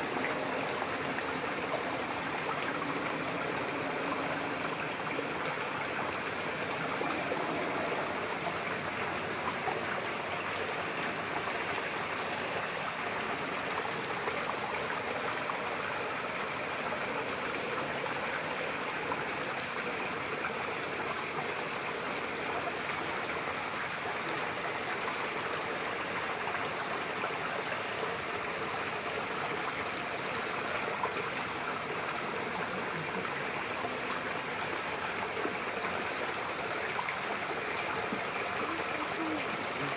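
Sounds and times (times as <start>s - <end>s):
running water rushing: 0.0s - 39.9s.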